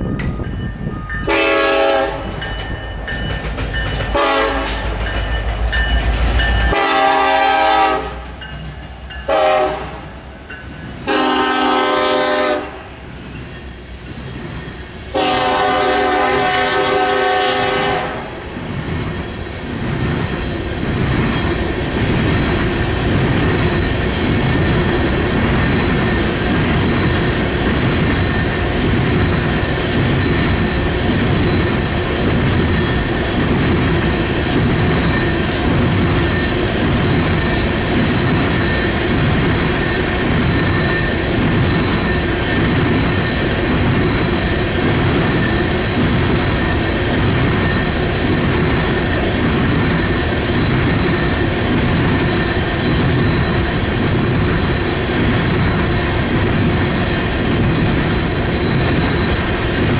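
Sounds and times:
train cars rumbling on rails: 0:00.0 - 0:59.9
locomotive air horn blasts: 0:01.3 - 0:02.3, 0:04.1 - 0:04.9, 0:06.7 - 0:08.3, 0:09.3 - 0:10.1, 0:11.1 - 0:12.9, 0:15.1 - 0:18.3.

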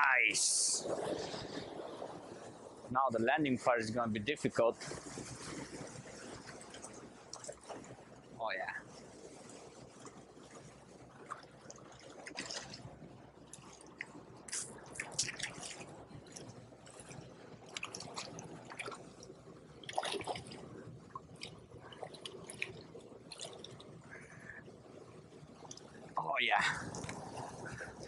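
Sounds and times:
water rushing over dam: 0:00.0 - 0:00.8, 0:08.4 - 0:08.9, 0:26.1 - 0:28.0.

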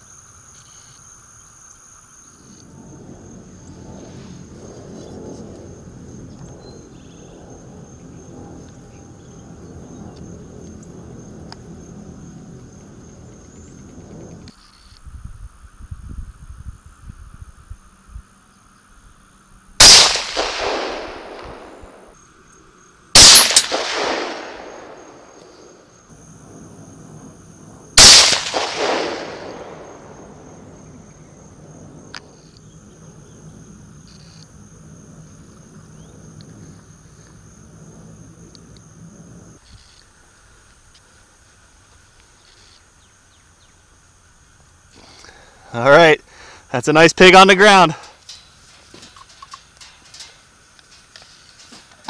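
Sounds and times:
rifle shots: 0:19.8 - 0:22.2, 0:23.2 - 0:25.8, 0:28.0 - 0:30.7
rolling gunshot echo: 0:19.8 - 0:22.2, 0:23.2 - 0:25.8, 0:28.0 - 0:31.0.

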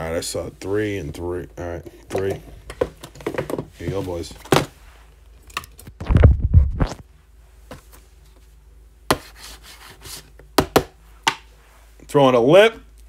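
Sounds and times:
rubbing on cardboard box: 0:09.1 - 0:10.3
sharp knocks on box: 0:10.6 - 0:11.4.

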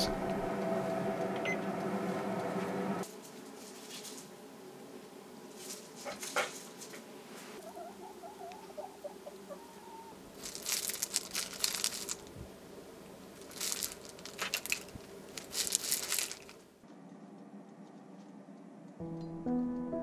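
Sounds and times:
hen scratching in gravel: 0:10.2 - 0:12.4, 0:13.3 - 0:16.7.

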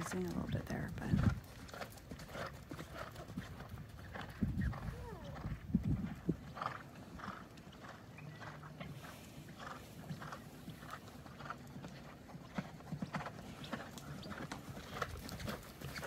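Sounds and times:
horse hoofbeats on sand: 0:00.0 - 0:16.0.

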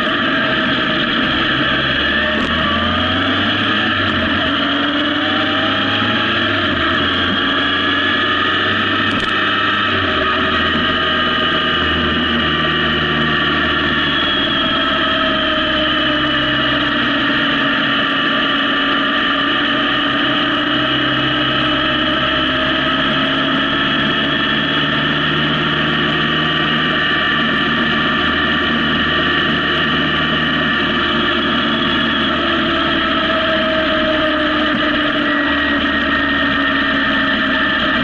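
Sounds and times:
motorcycle engine cruising: 0:00.0 - 0:38.0
road noise: 0:00.0 - 0:38.0.

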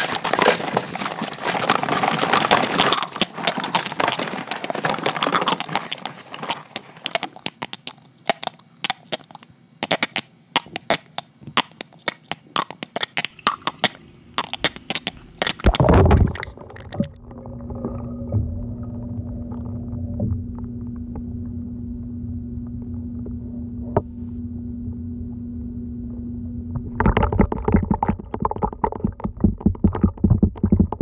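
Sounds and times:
bubbles popping: 0:02.3 - 0:08.1, 0:10.6 - 0:21.6, 0:26.8 - 0:31.0
steady low hum: 0:13.2 - 0:31.0.

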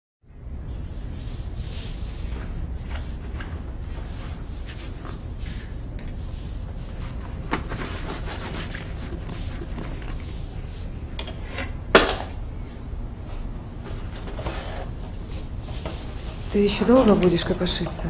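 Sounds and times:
rummaging clinks and rustling: 0:13.9 - 0:15.9.

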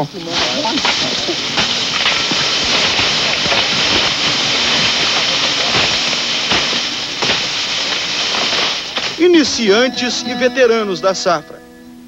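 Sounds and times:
dry cane leaves rustling: 0:00.0 - 0:11.4
machete chopping cane: 0:00.4 - 0:09.2.

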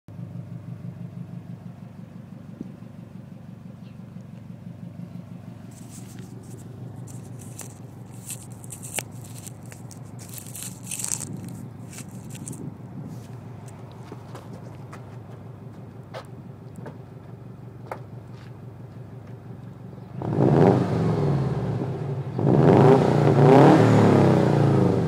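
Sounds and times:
car engine idling: 0:00.1 - 0:20.4
scraping and crackling noises: 0:05.6 - 0:15.4.

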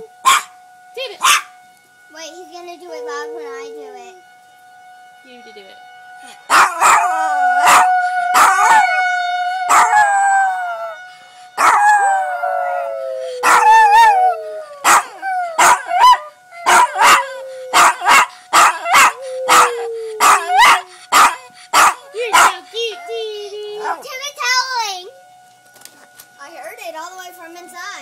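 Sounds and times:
dog yipping and barking: 0:00.2 - 0:00.6, 0:01.2 - 0:01.5, 0:06.5 - 0:07.1, 0:14.8 - 0:22.7
small dog howling: 0:02.8 - 0:04.2, 0:06.5 - 0:11.0, 0:11.6 - 0:24.1.

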